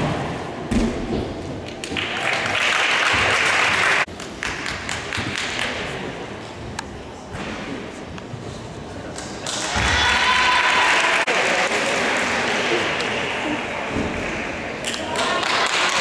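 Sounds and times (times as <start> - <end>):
thud: 0.0 - 1.5
audience applause: 1.8 - 5.2, 10.2 - 14.4, 15.1 - 16.0.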